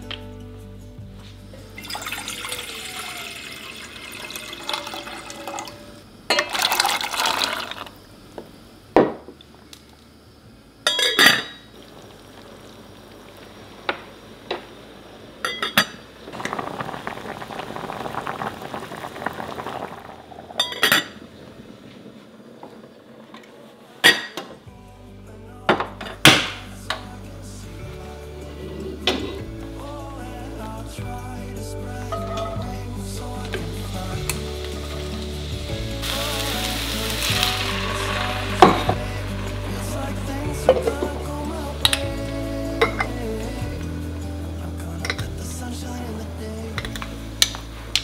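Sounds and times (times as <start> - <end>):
liquid pouring into vessel: 1.8 - 7.9, 16.3 - 21.5, 33.8 - 43.4
cookware clinking: 10.9 - 11.7, 15.4 - 16.0, 32.1 - 32.7.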